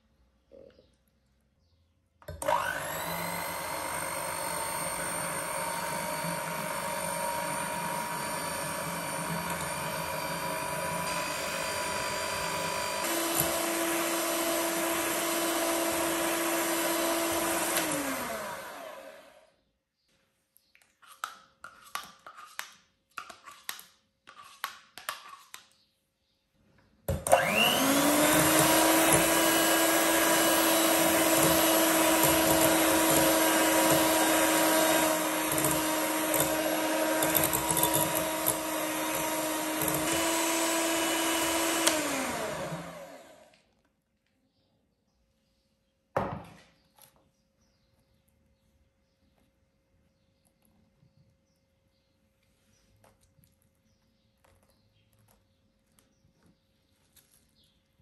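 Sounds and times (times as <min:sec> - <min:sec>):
electric hand mixer whirring: 0:02.3 - 0:19.5, 0:27.1 - 0:43.6.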